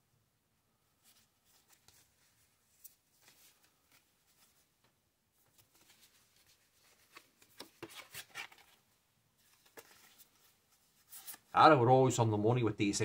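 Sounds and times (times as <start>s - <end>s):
cards rustling: 1.0s - 4.7s, 5.4s - 11.6s.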